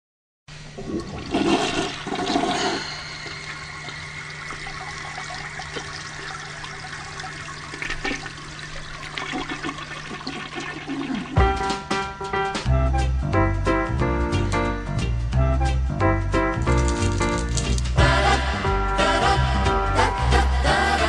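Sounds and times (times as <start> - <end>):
low steady hum: 0.5 - 10.7
toilet flushing: 0.6 - 11.9
water running: 0.6 - 12.2.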